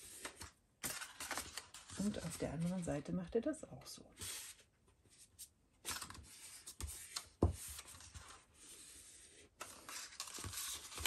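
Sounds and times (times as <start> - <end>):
paper rustling as folded: 0.0 - 3.0, 5.9 - 11.0.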